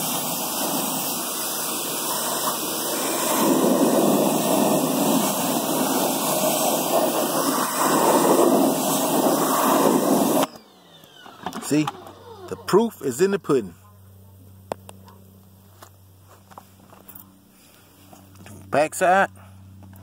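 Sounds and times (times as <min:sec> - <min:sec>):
pressure washer spraying water on metal: 0:00.0 - 0:10.5.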